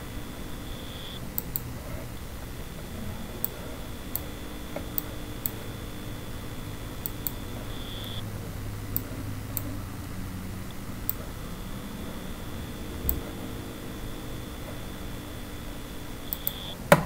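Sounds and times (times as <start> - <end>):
faint high whine: 0.0 - 17.0
steady low hum: 0.0 - 17.0
computer mouse clicks: 0.8 - 2.5, 3.4 - 5.7, 7.0 - 8.2, 13.0 - 13.4, 16.3 - 16.8.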